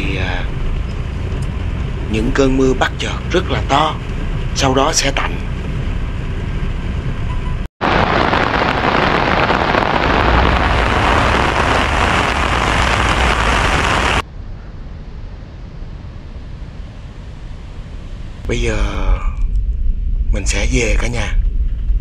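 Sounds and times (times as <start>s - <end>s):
heavy rain heard inside car: 7.8s - 14.2s.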